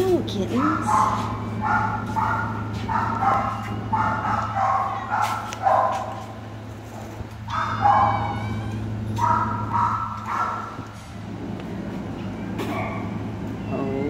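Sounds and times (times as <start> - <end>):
steady low hum: 0.0 - 14.0
dog whining: 0.5 - 6.2, 7.5 - 10.8, 12.3 - 14.0
dogs yipping and barking: 0.5 - 11.1, 12.2 - 13.9.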